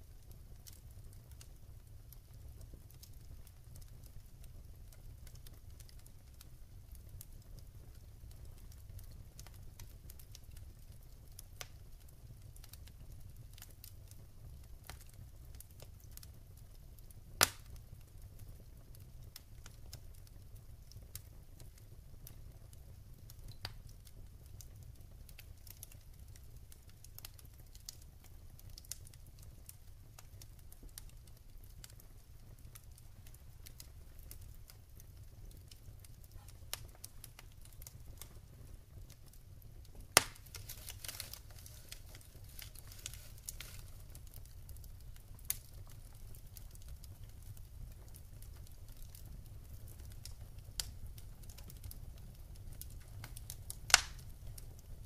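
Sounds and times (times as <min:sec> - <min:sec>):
fire crackling: 0:00.0 - 0:55.0
loud fire pops: 0:17.3 - 0:18.4, 0:28.7 - 0:52.0, 0:52.6 - 0:54.8.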